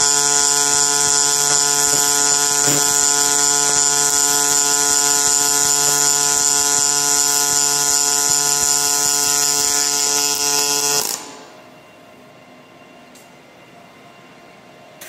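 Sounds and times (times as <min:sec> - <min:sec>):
welding arc hissing: 0:00.0 - 0:11.4
welder hum: 0:00.0 - 0:11.6.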